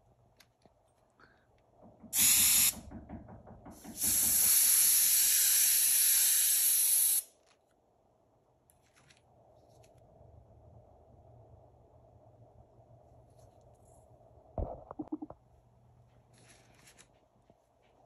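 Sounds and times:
spray paint hissing: 2.1 - 2.9, 3.8 - 7.3.

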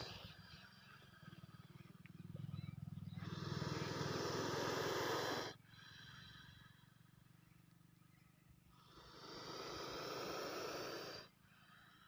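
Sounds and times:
snake hissing: 0.0 - 0.5, 3.2 - 6.9, 8.7 - 11.8.

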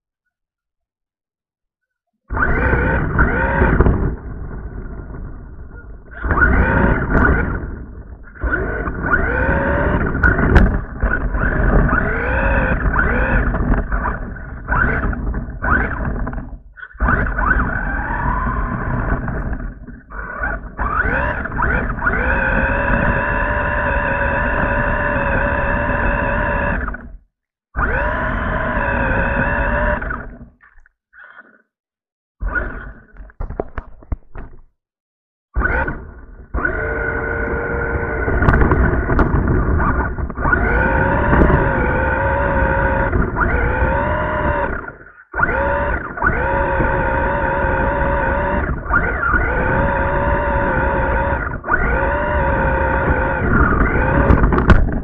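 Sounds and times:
rc truck motor whining: 2.3 - 27.2, 27.8 - 30.6, 32.4 - 33.2, 35.6 - 55.0
wheels and chassis rumble: 2.4 - 27.1, 35.6 - 55.0.

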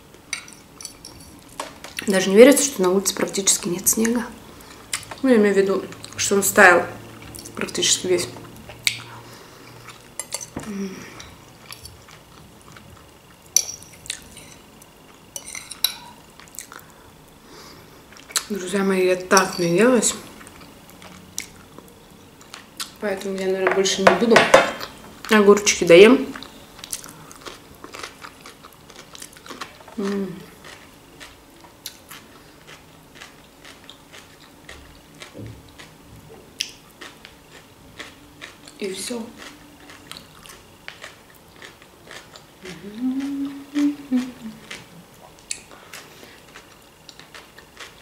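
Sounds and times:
person chewing cucumber: 20.4 - 23.0, 26.4 - 48.0.

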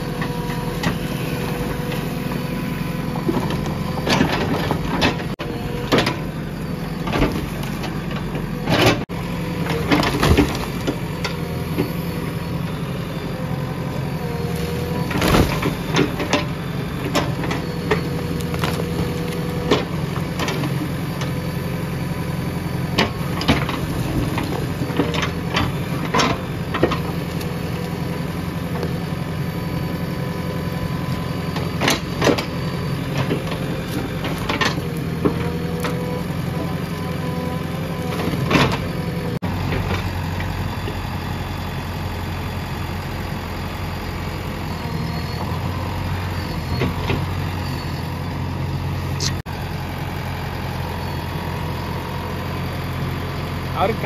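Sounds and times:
diesel engine running: 0.0 - 54.0
hydraulic whine: 0.0 - 54.0.

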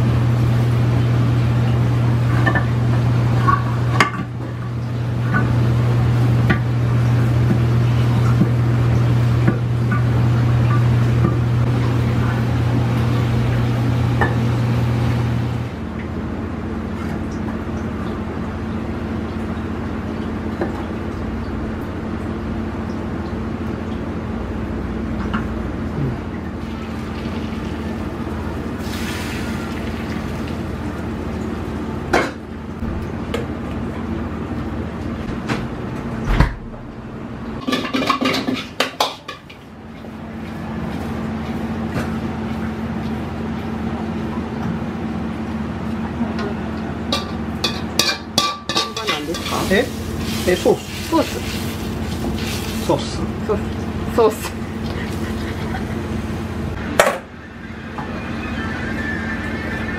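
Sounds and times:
gas range roaring: 0.0 - 59.9
metal ladle clanking in a wok: 47.1 - 49.7.

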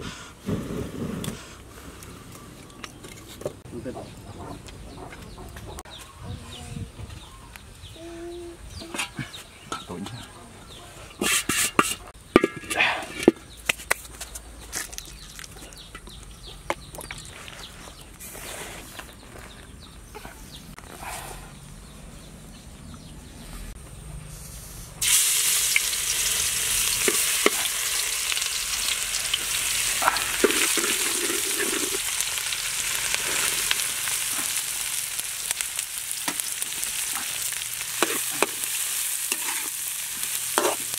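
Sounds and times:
food sizzling in hot oil: 25.0 - 40.9.

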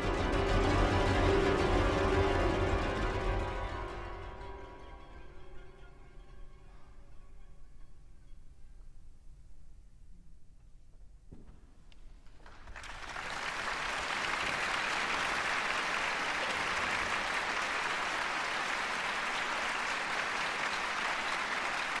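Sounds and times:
audience applauding: 12.3 - 22.0.

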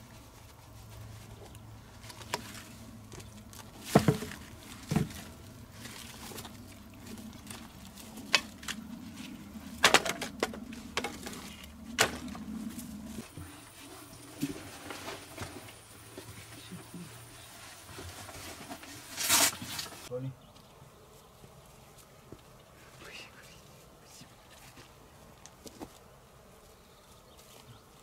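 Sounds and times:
rustling: 0.0 - 20.1
dry wood knocking and cracking: 2.1 - 8.9, 9.7 - 12.5.

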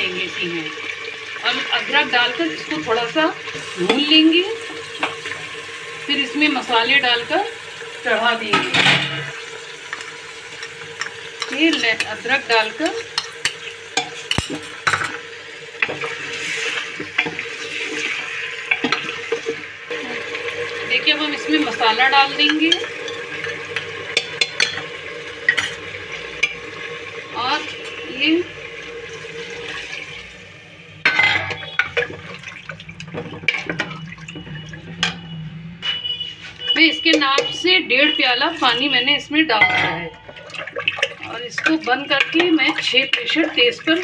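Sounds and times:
soft sizzle of oil: 0.0 - 35.0, 36.3 - 44.0
water pouring into a pot: 0.0 - 35.4, 37.0 - 44.0
ladle clinking against metal pot: 13.1 - 15.2, 22.5 - 24.9, 31.0 - 32.1, 37.1 - 37.6, 39.5 - 43.5.

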